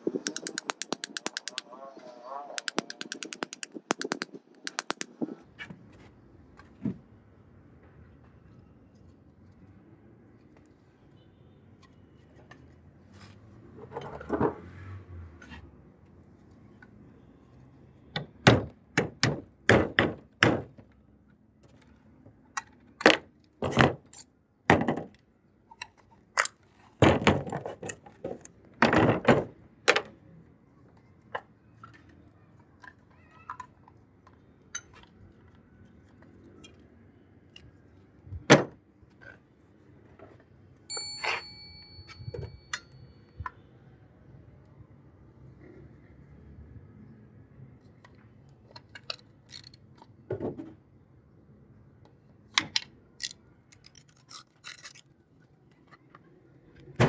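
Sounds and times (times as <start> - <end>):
hammer tapping out pins: 0.2 - 1.6, 2.6 - 5.1.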